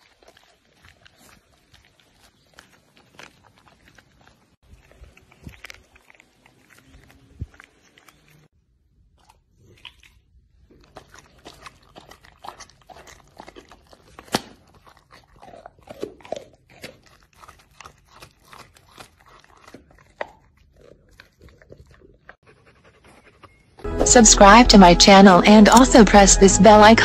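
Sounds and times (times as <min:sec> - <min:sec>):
dog chewing raw meat: 0:00.0 - 0:23.8.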